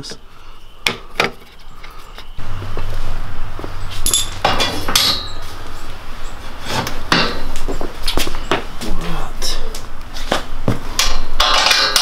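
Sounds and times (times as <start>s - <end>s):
low hum: 1.4s - 12.0s
metal clanks and clinks: 4.0s - 5.5s, 11.0s - 12.0s.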